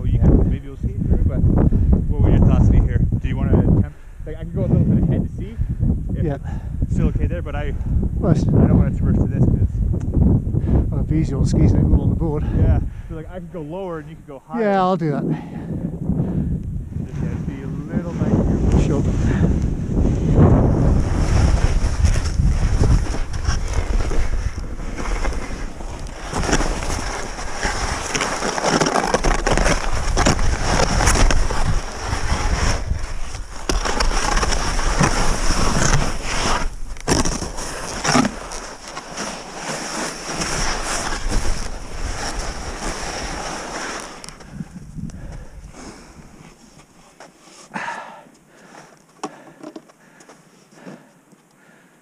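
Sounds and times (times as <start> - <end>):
wind on microphone: 0.0 - 38.8, 40.1 - 46.6
skis scraping over snow: 17.0 - 47.7.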